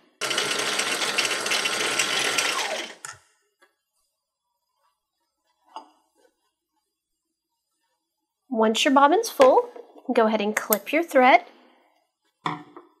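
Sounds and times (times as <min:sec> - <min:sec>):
sewing machine whining: 0:00.2 - 0:03.1.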